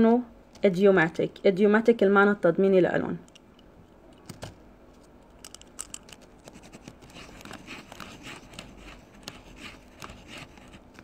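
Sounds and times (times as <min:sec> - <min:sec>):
scratching and clicking handling noises: 0:03.3 - 0:11.0.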